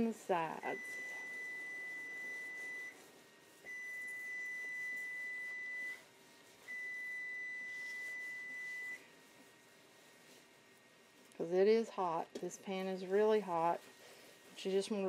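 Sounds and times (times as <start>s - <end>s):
stove timer alarm beeps: 0.6s - 9.1s.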